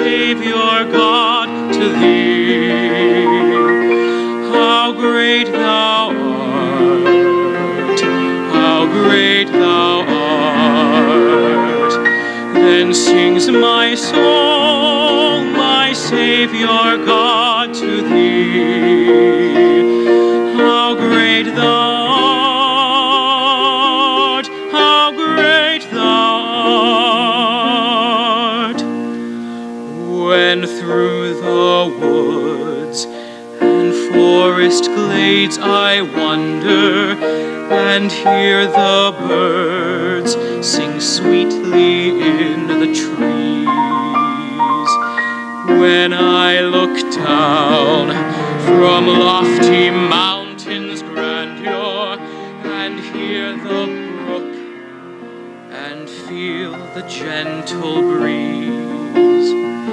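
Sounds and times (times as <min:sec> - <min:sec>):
grand piano: 0:00.0 - 0:59.9
man singing a hymn: 0:00.0 - 0:59.9.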